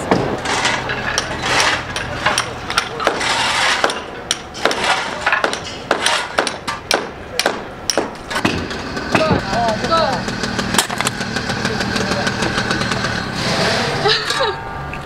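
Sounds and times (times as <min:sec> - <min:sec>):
rubble noise: 0:00.0 - 0:14.1
hammers knocking brick: 0:01.2 - 0:09.5.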